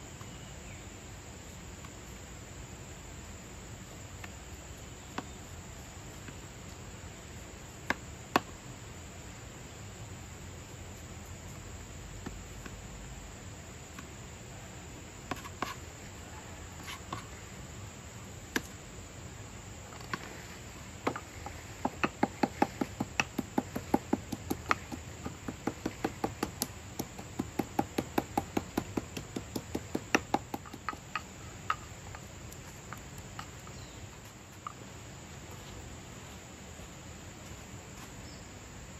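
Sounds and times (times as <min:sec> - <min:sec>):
high insect drone: 0:00.0 - 0:38.9.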